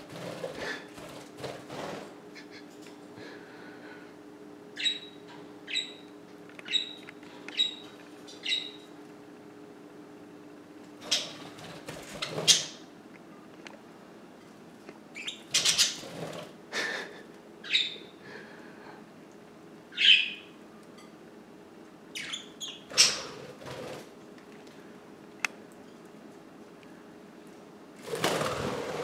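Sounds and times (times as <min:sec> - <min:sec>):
wing flapping: 0:00.0 - 0:02.2, 0:23.0 - 0:24.2, 0:28.0 - 0:29.0
budgerigars chirping and squawking: 0:08.4 - 0:08.8, 0:15.2 - 0:16.1, 0:17.6 - 0:18.0, 0:20.0 - 0:20.4, 0:22.2 - 0:23.4.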